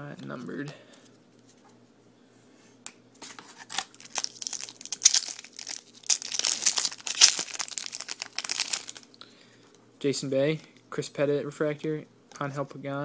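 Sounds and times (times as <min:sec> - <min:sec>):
foil wrapper crinkling: 0:03.5 - 0:09.2.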